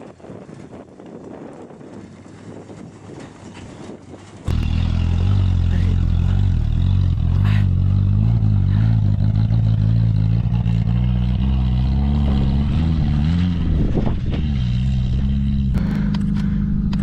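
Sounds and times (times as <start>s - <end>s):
off-road vehicle engine running: 4.5s - 17.0s.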